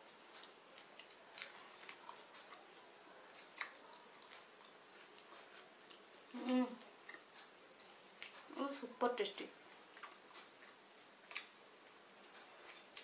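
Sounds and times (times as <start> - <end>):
person chewing and lip-smacking: 3.4 - 7.5.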